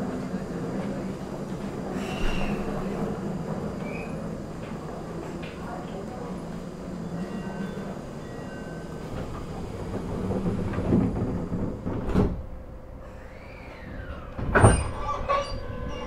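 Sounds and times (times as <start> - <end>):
sliding doors shutting with a thud: 0.7 - 5.7, 9.0 - 12.7, 13.4 - 15.9
train doors knocking: 8.8 - 12.7.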